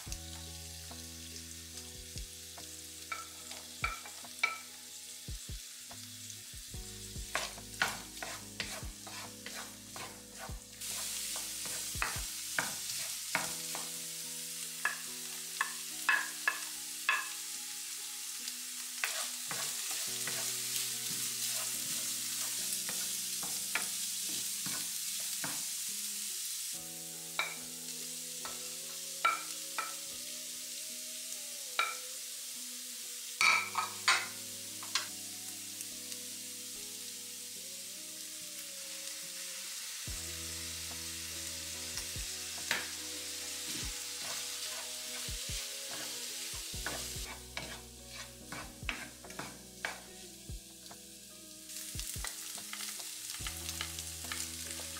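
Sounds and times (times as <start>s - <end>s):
food sizzling in a pan: 0.0s - 54.9s
wooden spatula scraping pan: 7.3s - 13.5s, 19.0s - 23.1s, 43.6s - 46.2s, 46.8s - 50.1s.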